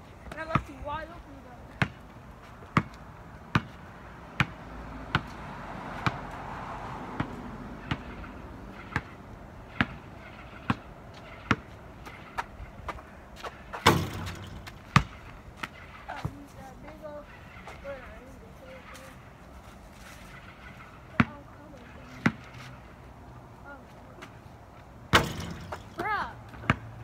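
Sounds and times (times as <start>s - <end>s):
basketball bouncing on asphalt: 0.0s - 27.0s
loud impact with ringing: 13.8s - 16.0s, 25.1s - 26.0s.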